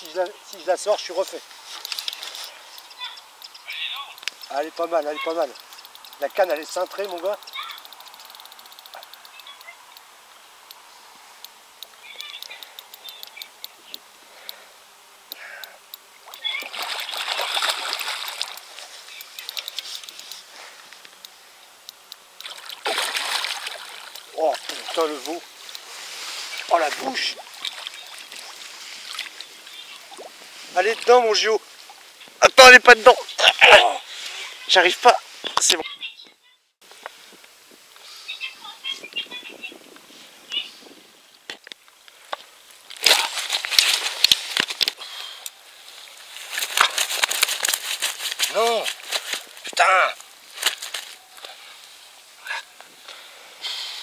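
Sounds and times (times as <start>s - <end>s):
crackling rustling handling noise: 0.0s - 14.2s, 15.9s - 33.4s, 41.4s - 53.2s
fish thrashing and splashing water: 16.3s - 18.8s, 22.4s - 25.3s, 26.6s - 30.3s.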